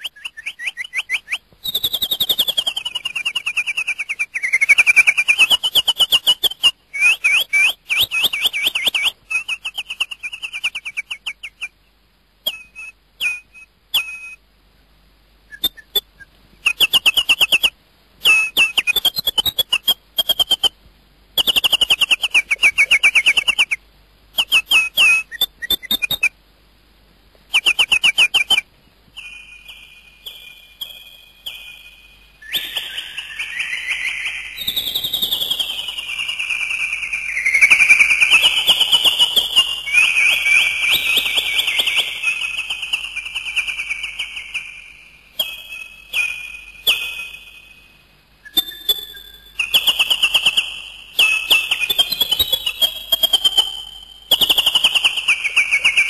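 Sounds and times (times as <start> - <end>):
bird rapid high trills: 0.0 - 11.8, 12.4 - 14.4, 15.5 - 20.7, 21.4 - 26.4, 27.5 - 47.8.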